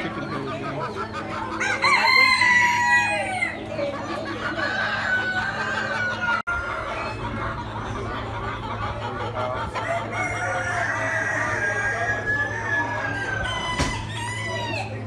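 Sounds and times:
roosters crowing: 0:01.3 - 0:07.3, 0:09.7 - 0:15.0.

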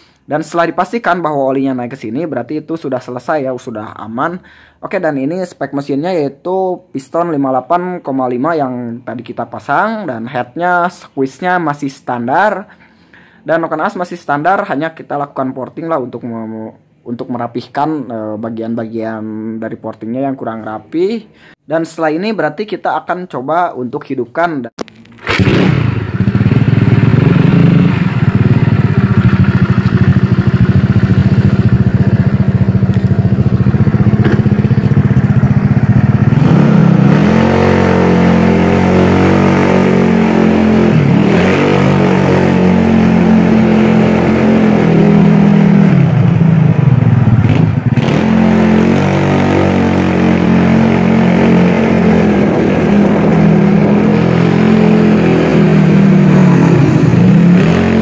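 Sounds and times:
scooter engine running: 0:25.2 - 0:58.0.

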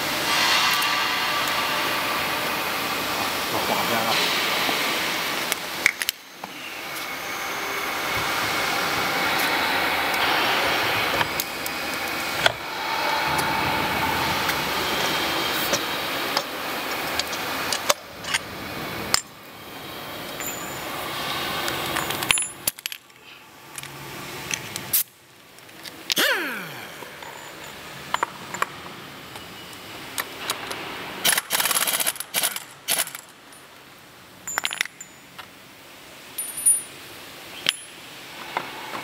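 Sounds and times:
workshop background noise: 0:00.0 - 0:39.0
metal parts clinking: 0:21.8 - 0:25.0, 0:34.4 - 0:35.6, 0:36.3 - 0:38.0.

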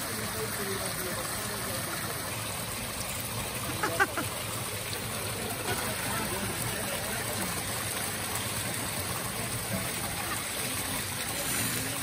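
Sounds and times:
water pouring into pool: 0:00.0 - 0:12.0
faint voices: 0:03.5 - 0:12.0.

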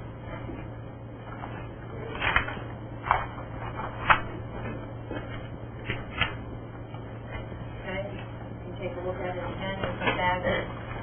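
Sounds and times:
steady low hum: 0:00.0 - 0:11.0
papers rustling and tapping: 0:00.3 - 0:07.5.

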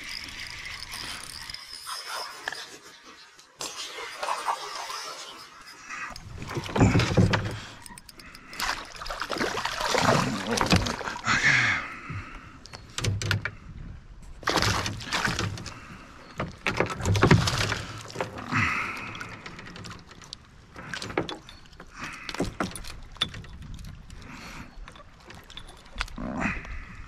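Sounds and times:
water splashing: 0:08.4 - 0:11.4, 0:14.4 - 0:16.0.

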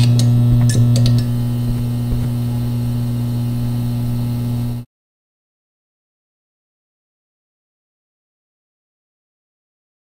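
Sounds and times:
loud electrical hum: 0:00.0 - 0:04.9.

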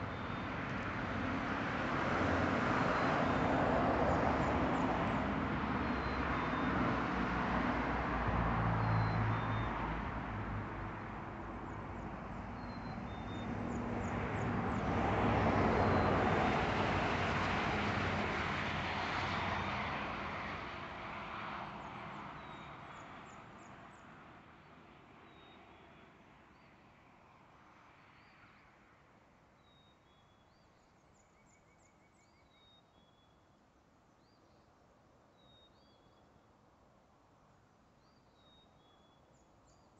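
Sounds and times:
vehicles crossing bridge: 0:00.0 - 0:22.6.

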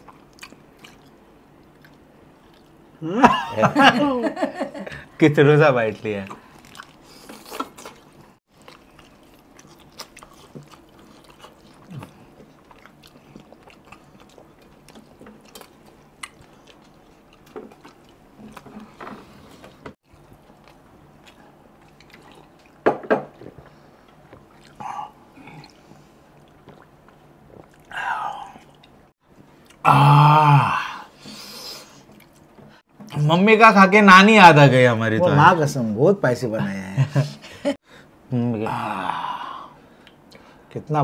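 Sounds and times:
people chewing and smacking: 0:00.0 - 0:03.0, 0:05.8 - 0:30.2, 0:31.2 - 0:33.2, 0:40.0 - 0:40.6.

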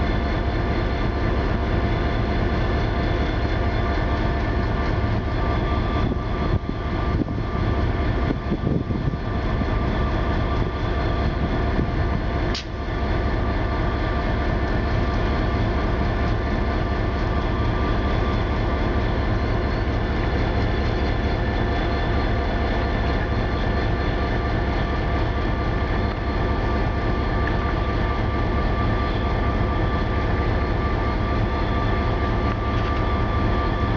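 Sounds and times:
diesel locomotive engine running: 0:00.0 - 0:33.9
sharp click: 0:12.5 - 0:12.8.

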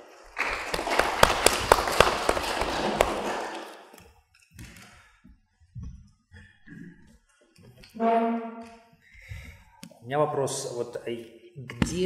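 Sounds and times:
small audience applauding: 0:00.0 - 0:03.9.

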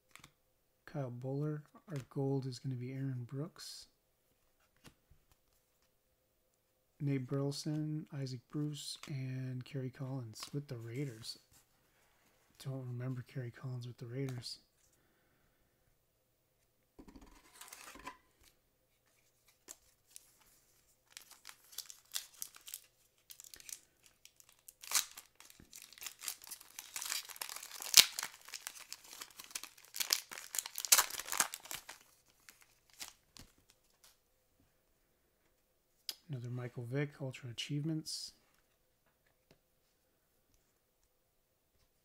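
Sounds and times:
foil wrapper tearing and crinkling: 0:21.1 - 0:33.5.

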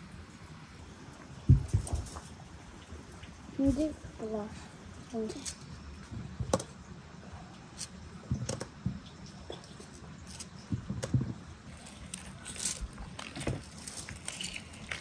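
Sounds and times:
juice dripping: 0:04.9 - 0:15.0.

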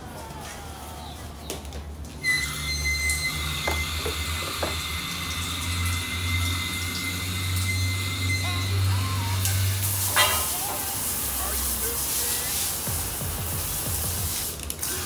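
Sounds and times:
high whistle from nozzle: 0:02.2 - 0:04.1, 0:07.0 - 0:08.8
hose nozzle spraying water: 0:02.3 - 0:15.0.

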